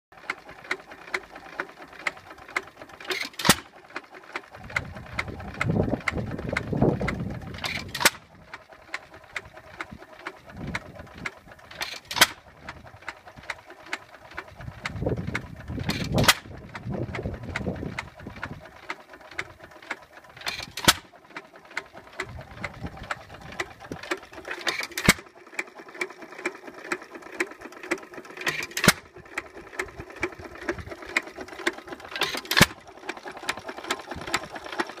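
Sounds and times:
rapid mechanical clicking: 0.2s - 35.0s
stationary engine firing: 3.0s - 3.7s, 11.7s - 12.5s, 20.4s - 21.2s, 24.5s - 25.3s.

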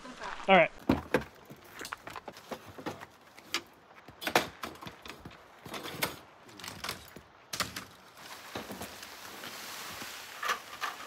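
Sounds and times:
camp table metal clicks and rattles: 0.9s - 8.8s, 10.4s - 11.0s.

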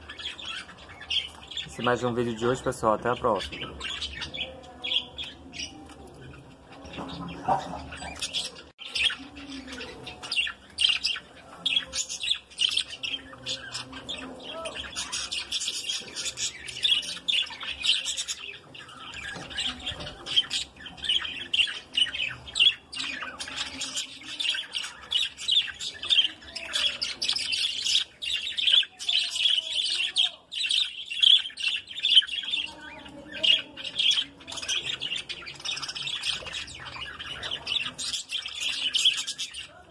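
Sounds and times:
budgerigars chattering: 0.0s - 39.8s.

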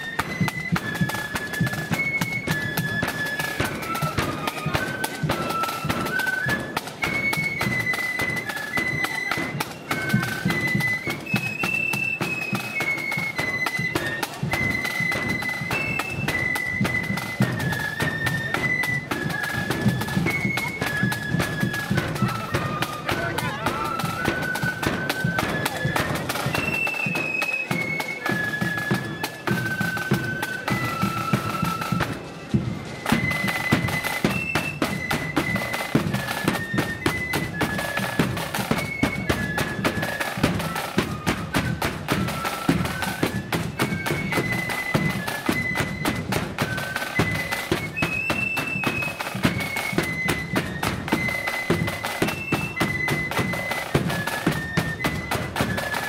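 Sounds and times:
flutes playing melody: 0.0s - 56.0s
side drums: 0.0s - 56.0s.

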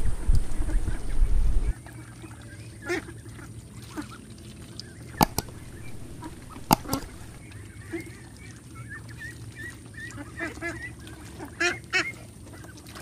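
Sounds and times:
ducks calling: 0.5s - 13.0s
sharp clicks: 5.2s - 7.4s.

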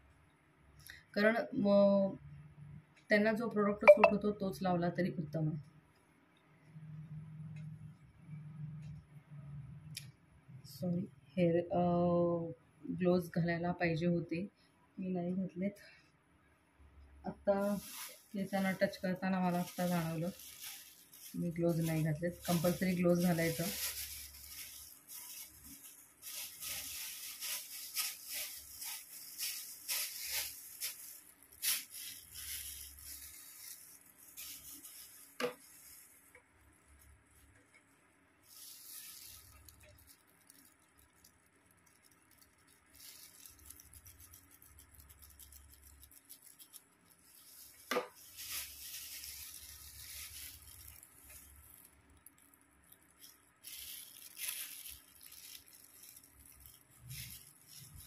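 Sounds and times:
plastic gloves crinkling: 16.8s - 58.0s.

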